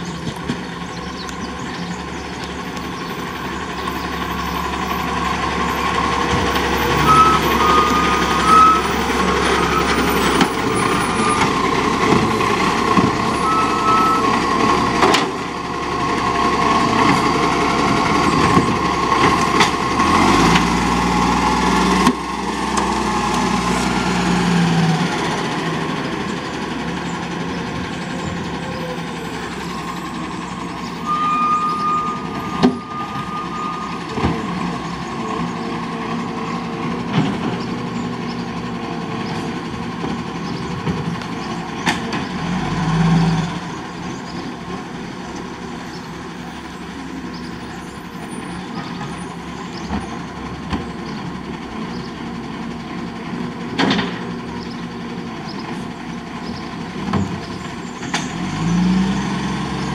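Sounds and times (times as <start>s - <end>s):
garbage truck diesel engine: 0.0s - 59.9s.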